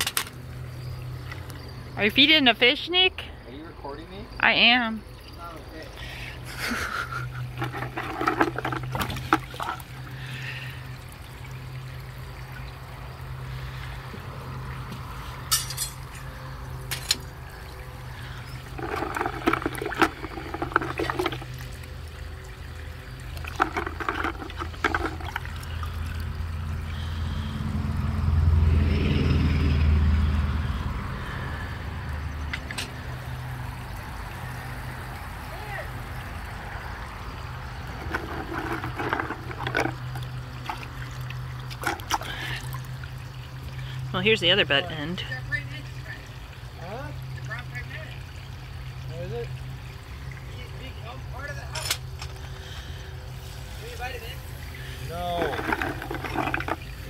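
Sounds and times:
hand sloshing water in a bucket: 5.3 - 15.6, 16.2 - 27.5, 35.6 - 44.1, 50.4 - 57.0.

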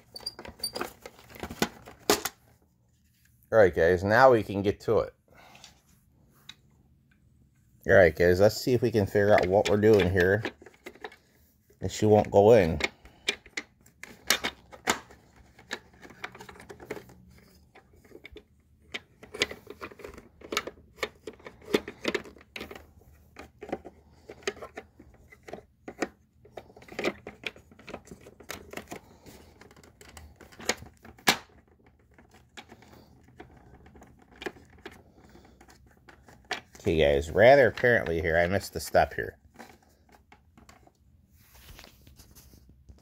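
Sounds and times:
plastic vacuum parts clicking: 0.0 - 2.5, 9.0 - 11.3, 12.0 - 41.0.

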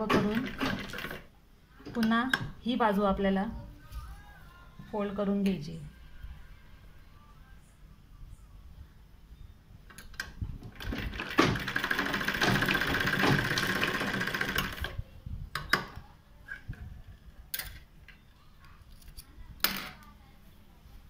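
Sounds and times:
sewing machine stitching: 0.0 - 1.3, 10.8 - 15.0.

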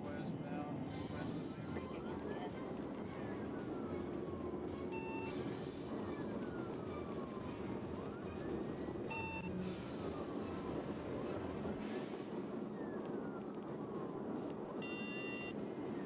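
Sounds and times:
road and engine noise: 0.0 - 16.0
police siren wailing: 1.9 - 11.9, 12.5 - 16.0
short beeps: 9.1 - 9.5, 14.8 - 15.5.

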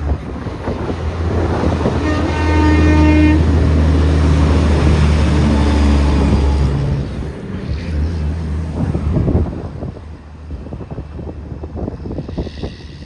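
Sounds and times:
truck diesel engine rumbling: 0.0 - 13.0
truck horn: 1.9 - 3.6.

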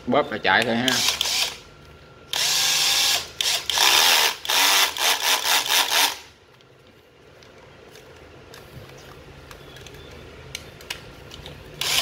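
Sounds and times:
cordless drill spinning: 0.9 - 1.6, 2.3 - 6.3, 11.8 - 12.0.

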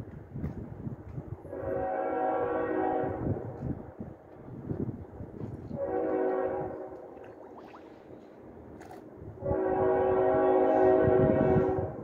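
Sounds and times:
horn blasts: 1.4 - 3.4, 5.7 - 7.1, 9.4 - 12.0.

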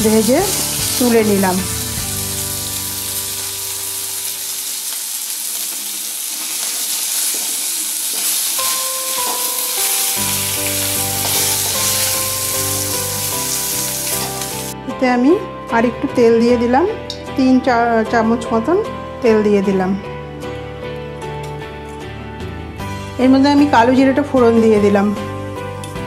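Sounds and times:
fish sizzling in hot oil: 0.0 - 14.8
soft background music: 0.0 - 26.0.

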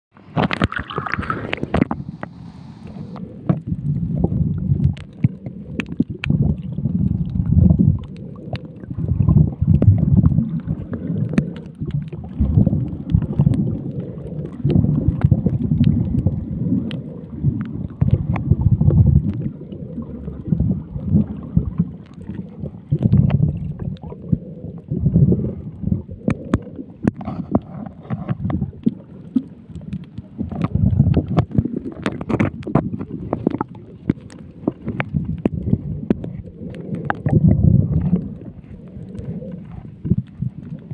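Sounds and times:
underwater rumble: 0.1 - 40.9.

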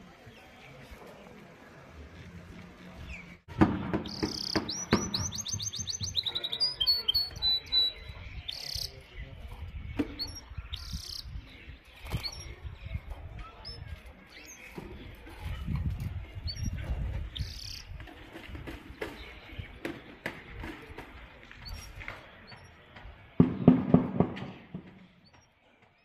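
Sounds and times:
canary trilling and chirping: 4.0 - 21.0, 21.6 - 22.9.

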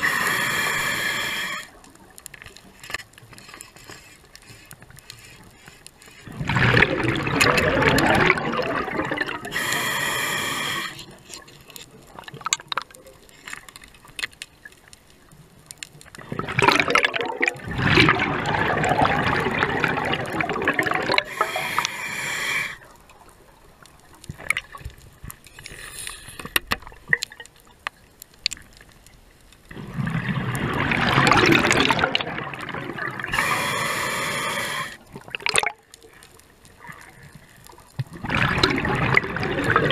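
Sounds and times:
diver breathing through regulator: 0.0 - 1.8, 9.5 - 11.2, 21.1 - 22.8, 25.6 - 26.6, 33.3 - 35.0
bubbling and hissing: 0.0 - 2.2, 3.9 - 12.5, 16.2 - 23.3, 29.7 - 36.2, 36.8 - 39.9.

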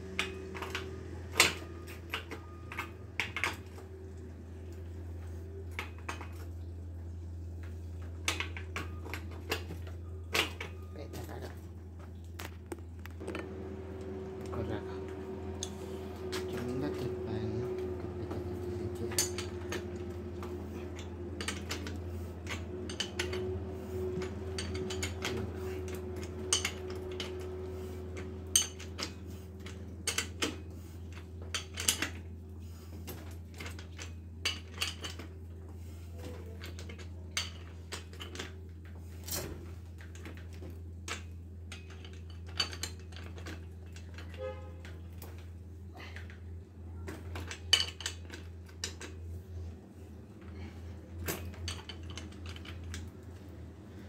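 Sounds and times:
steady low hum: 0.0 - 54.0
metal tools clinking on bicycle: 14.5 - 32.3, 33.6 - 35.3, 36.2 - 38.6, 41.0 - 46.4, 47.2 - 49.2, 50.5 - 53.1.

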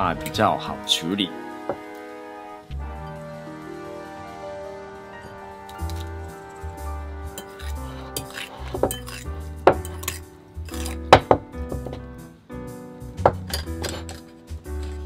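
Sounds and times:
background music: 0.0 - 15.0
fork clinking against glass bowl: 7.4 - 11.0.

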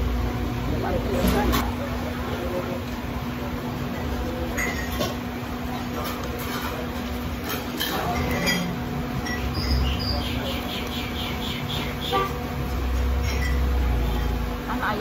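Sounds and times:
constant hum: 0.0 - 15.0.

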